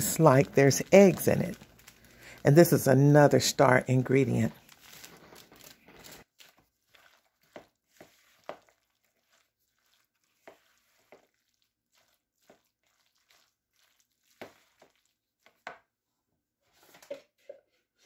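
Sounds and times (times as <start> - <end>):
spatula scraping plastic bowl: 4.9 - 15.6.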